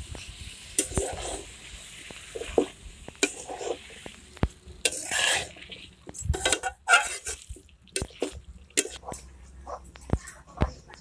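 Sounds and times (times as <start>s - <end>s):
oil sizzling: 0.0s - 9.6s
metal spatula scraping a pan: 0.7s - 4.1s, 4.8s - 9.4s.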